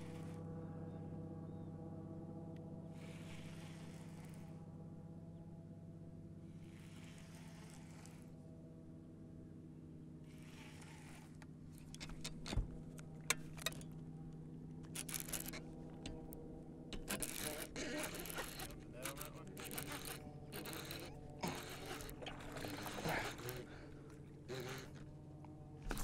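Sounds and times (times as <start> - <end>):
fishing reel rasping: 0.0 - 0.4, 3.0 - 4.6, 6.5 - 8.4, 10.3 - 14.0, 14.9 - 15.8, 17.0 - 25.1
steady low hum: 0.0 - 26.0.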